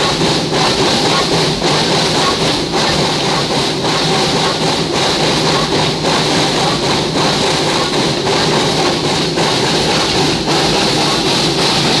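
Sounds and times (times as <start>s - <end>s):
steam locomotive working hard: 0.0s - 12.0s.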